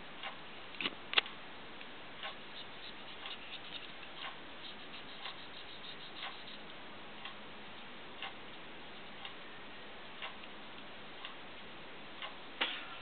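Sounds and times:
low hiss: 0.0s - 13.0s
clock ticking: 2.2s - 7.4s, 8.2s - 9.6s, 10.2s - 11.4s, 12.2s - 12.4s.

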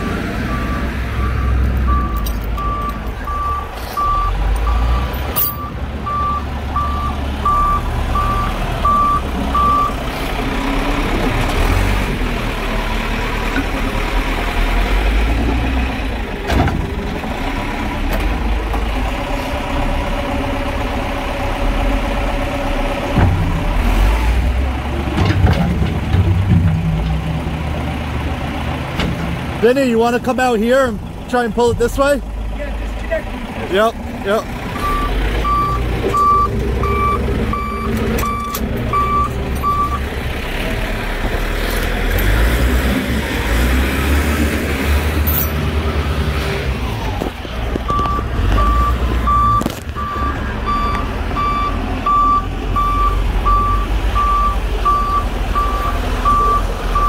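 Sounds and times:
diesel engine running: 0.0s - 57.0s
backup alarm beeping: 0.5s - 10.0s, 34.8s - 40.0s, 47.9s - 57.0s.

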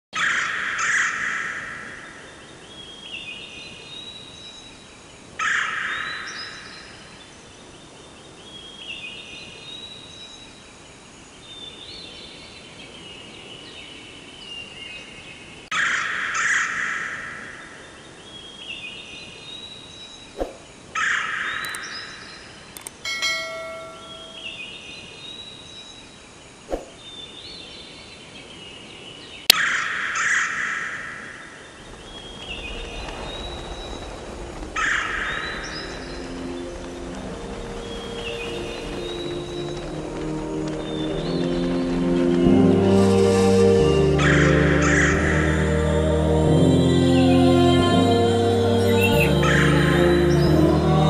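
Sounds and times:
sharp click: 21.6s - 21.8s
brief ringing chime: 22.8s - 24.7s
whistled bird songs: 31.7s - 44.5s.

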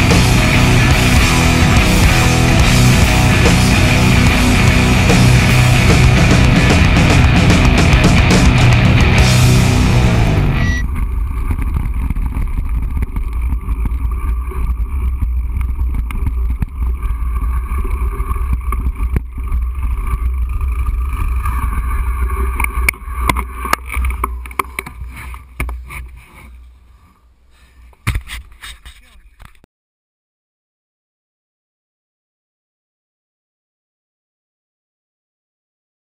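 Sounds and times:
bike clicking over bumps: 10.8s - 26.6s
bike tyres rolling on dirt trail: 10.8s - 29.6s.

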